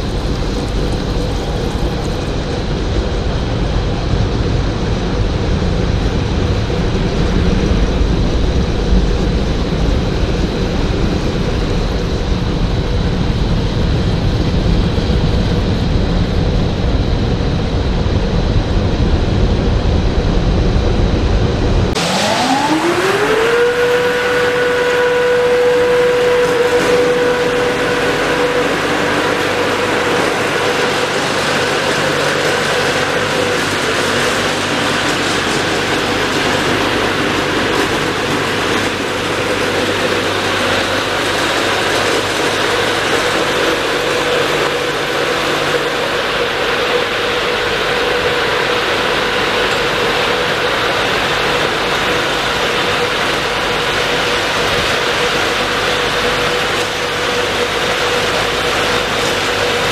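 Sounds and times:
car wash blowers rushing air: 0:00.0 - 0:59.9.

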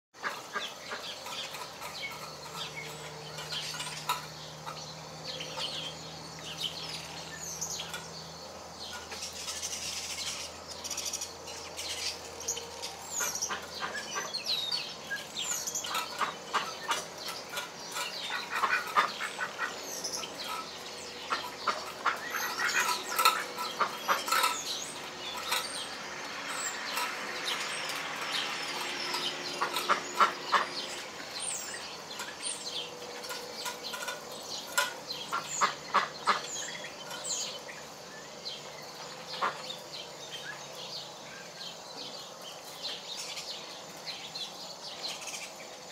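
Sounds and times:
beaks pecking on concrete: 0:00.1 - 0:45.9
hens clucking and chirping: 0:00.2 - 0:40.8.

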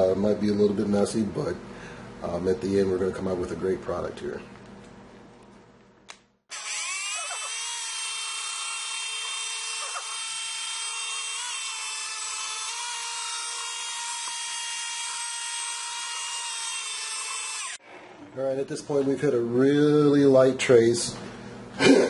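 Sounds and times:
stick blender motor whine: 0:06.5 - 0:17.8.

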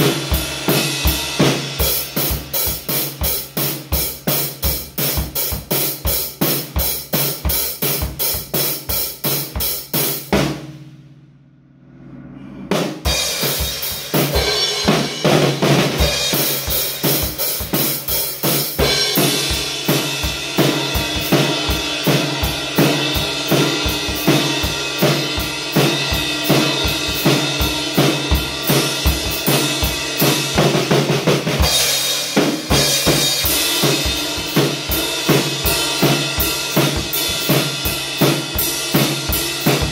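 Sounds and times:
drum kit playing: 0:00.0 - 0:39.9.

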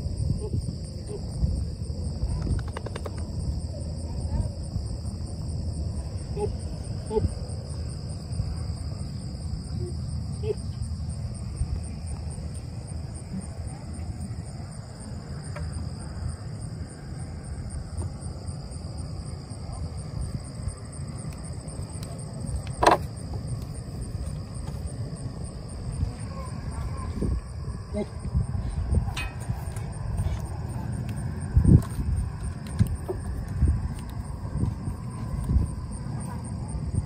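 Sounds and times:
insects trilling: 0:00.0 - 0:37.0
pulsing insect trill: 0:00.0 - 0:37.0.

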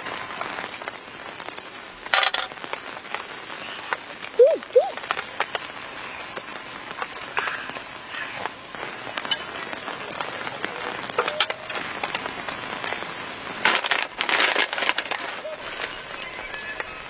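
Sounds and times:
rain pattering on tent: 0:00.0 - 0:17.0.

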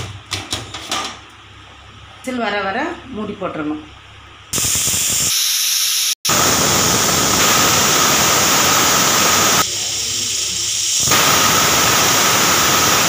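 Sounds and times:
pressure cooker whistling hiss: 0:04.6 - 0:13.0.

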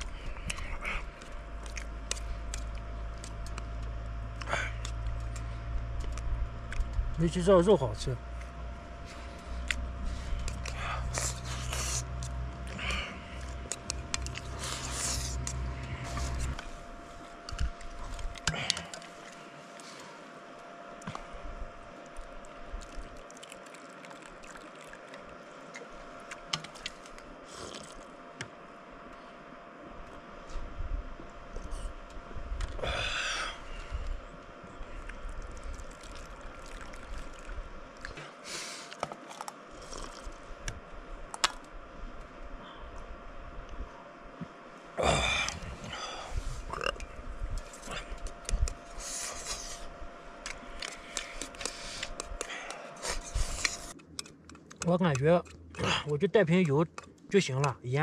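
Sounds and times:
eating noises: 0:00.0 - 0:07.0, 0:08.4 - 0:20.0, 0:22.0 - 0:28.2, 0:34.8 - 0:40.5, 0:45.0 - 0:57.8
low rumble: 0:00.0 - 0:19.4
hissing sip: 0:10.4 - 0:16.7, 0:27.5 - 0:28.1, 0:35.0 - 0:40.4, 0:50.8 - 0:54.0
hot water pouring into cup: 0:22.8 - 0:25.3, 0:35.6 - 0:37.5.

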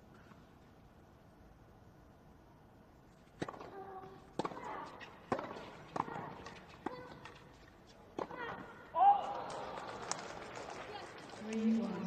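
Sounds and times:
rackets hitting tennis ball: 0:03.2 - 0:10.3.

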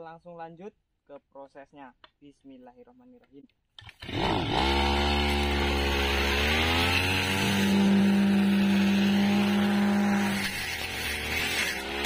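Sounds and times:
brush cutter engine revving: 0:03.8 - 0:12.0.

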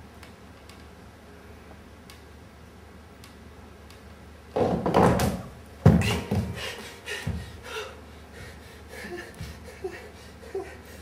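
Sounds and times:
heavy thud on wooden floor: 0:04.6 - 0:06.6.

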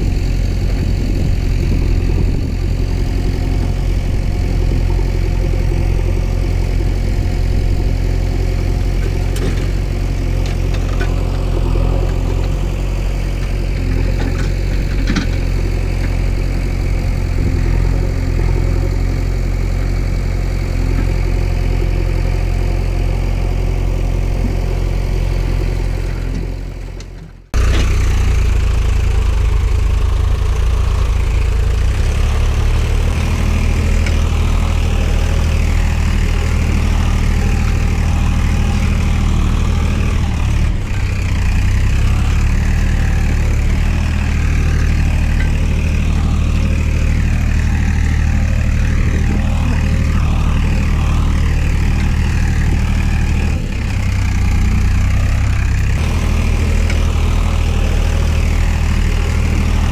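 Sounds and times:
engine idling: 0:00.0 - 0:59.9
loud engine: 0:00.0 - 0:59.9.

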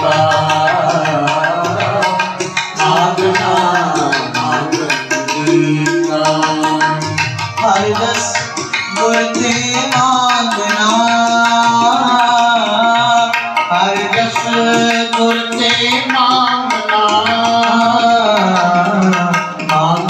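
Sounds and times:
harmonium: 0:00.0 - 0:20.0
tabla: 0:00.0 - 0:20.0.

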